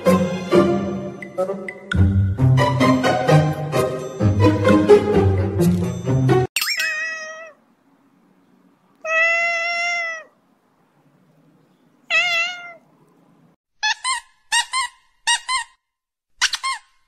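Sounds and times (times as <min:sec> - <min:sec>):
kitten meowing: 0:09.0 - 0:10.3, 0:12.1 - 0:12.8.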